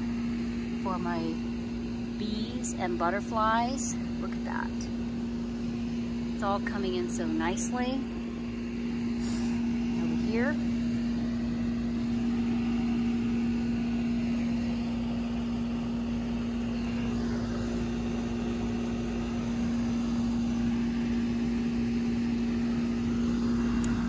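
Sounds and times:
machine hum: 0.0 - 24.0.

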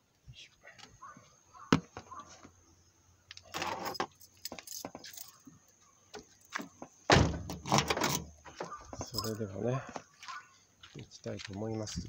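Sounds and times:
small objects jingling and rattling: 3.5 - 5.4, 9.0 - 9.4.

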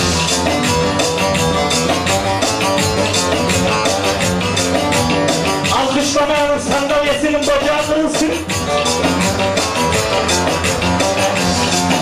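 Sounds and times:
electronic keyboard playing: 0.0 - 12.0
steady beat: 0.0 - 12.0.

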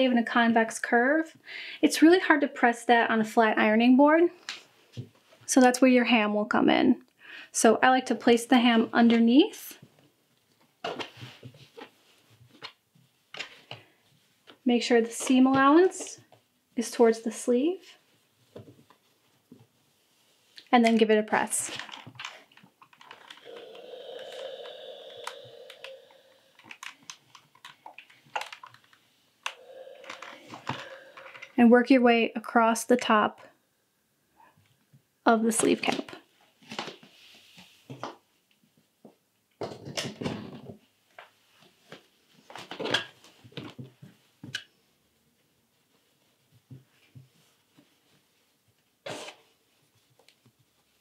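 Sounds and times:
steam iron humming: 23.4 - 26.8, 29.5 - 31.6.

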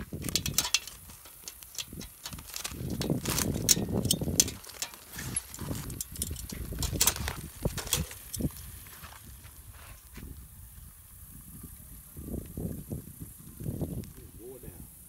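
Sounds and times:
foil crinkling: 0.0 - 10.1
metal tongs clicking and scraping: 0.2 - 8.5.

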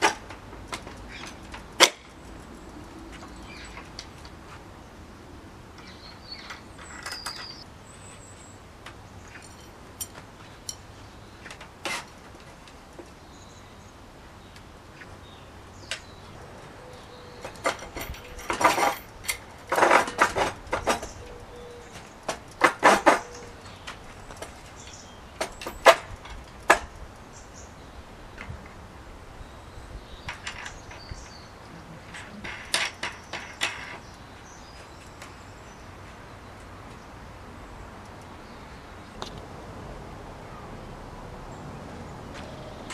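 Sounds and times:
metallic rattling and scraping: 16.3 - 27.0.

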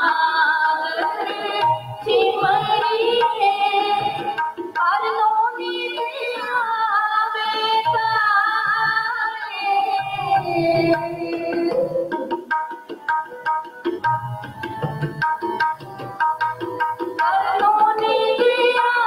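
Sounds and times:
women singing a hymn: 0.0 - 4.4, 17.2 - 19.0
harmonium held notes: 0.0 - 19.0.

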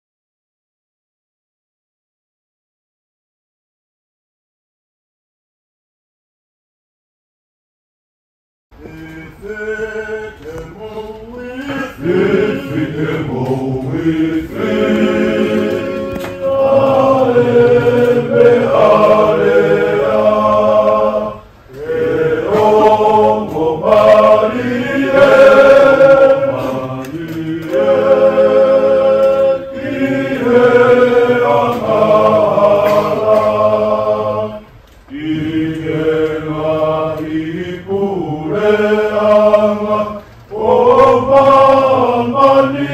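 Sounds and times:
choir singing in harmony: 8.8 - 42.9.

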